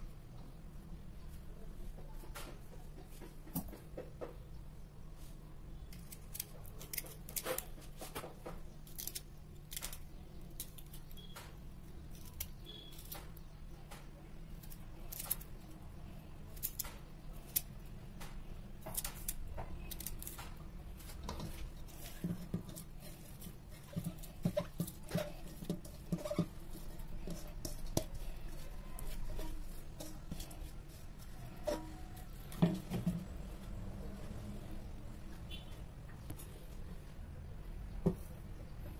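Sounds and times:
small clicks and scrapes: 5.9s - 15.8s, 16.5s - 32.9s
knife slicing ginger: 16.5s - 33.0s.

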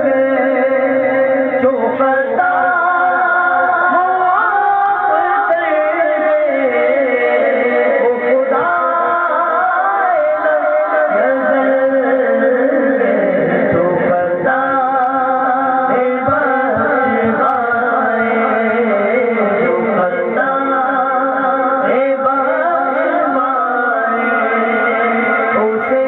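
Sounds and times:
man singing through microphone: 0.0s - 26.0s.

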